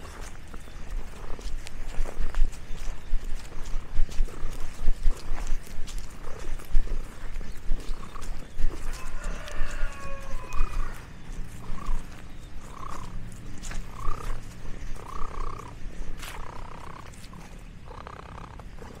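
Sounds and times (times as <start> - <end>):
steady low rumble: 0.0 - 19.0.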